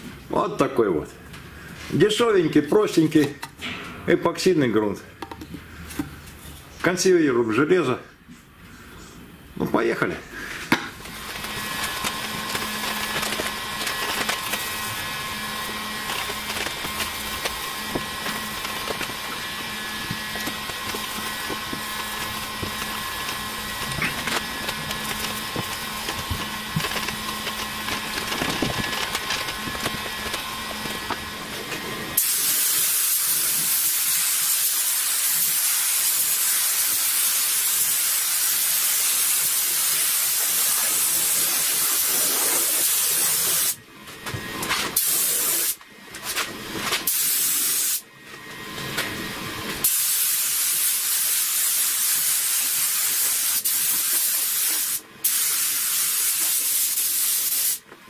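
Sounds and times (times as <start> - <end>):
spray gun hissing: 32.2 - 43.8, 45.0 - 45.8, 47.1 - 48.0, 49.8 - 57.8.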